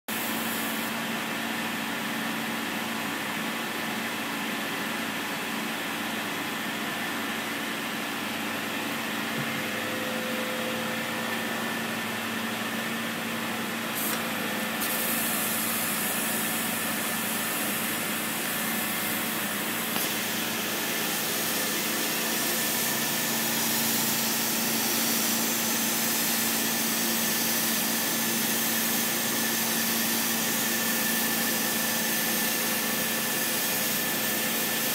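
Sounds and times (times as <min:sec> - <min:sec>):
laser cutter hiss: 0:00.1 - 0:01.0, 0:13.8 - 0:34.9
machine hum: 0:06.2 - 0:23.8.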